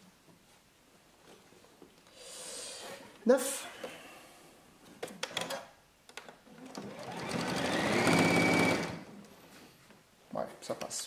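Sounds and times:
sewing machine stitching: 6.6s - 9.1s.

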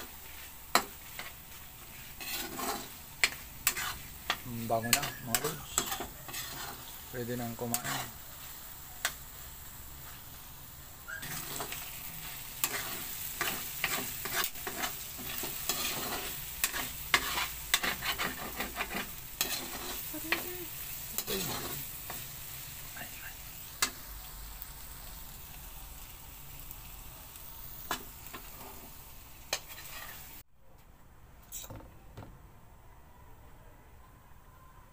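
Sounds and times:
metal spatula scraping a pan: 0.0s - 9.2s, 11.1s - 23.2s, 27.8s - 30.4s
food sizzling in a wok: 0.0s - 30.5s.

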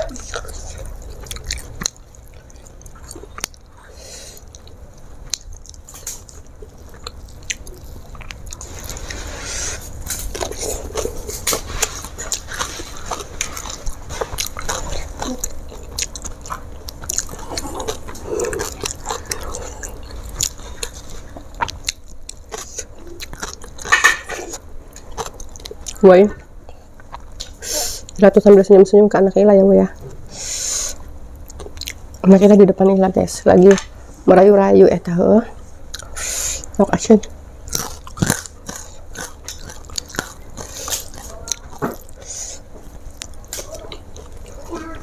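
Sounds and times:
person chewing and biting food: 0.0s - 26.0s, 37.6s - 45.0s.

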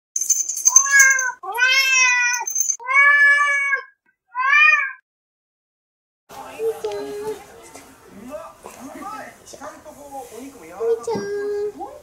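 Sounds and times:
cat meowing: 0.8s - 5.0s.

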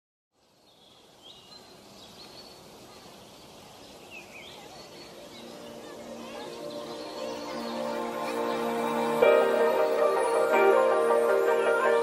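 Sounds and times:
steady outdoor hiss: 0.3s - 12.0s
small birds chirping: 0.4s - 12.0s
music: 5.1s - 12.0s.

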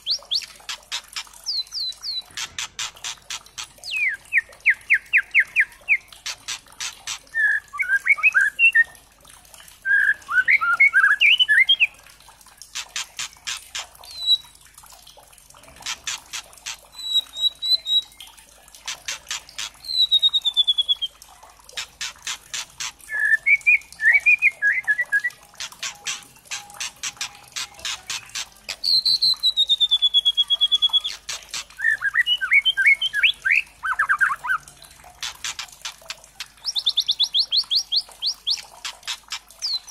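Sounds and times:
songbird singing rattling runs: 21.8s - 34.4s
bird warbling: 21.8s - 39.9s.

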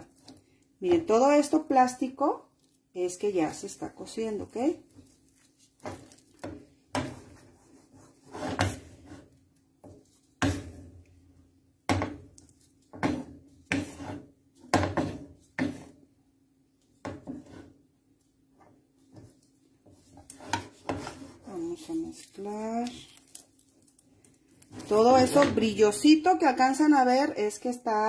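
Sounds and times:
wooden spatula scraping frying pan: 3.5s - 11.0s, 11.9s - 16.1s, 17.0s - 17.9s, 18.5s - 22.4s, 24.7s - 25.9s.

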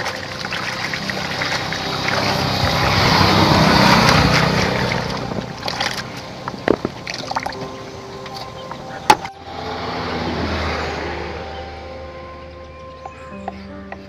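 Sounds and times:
water splashing in a plastic basin: 0.0s - 7.7s
water dripping: 0.0s - 9.4s.

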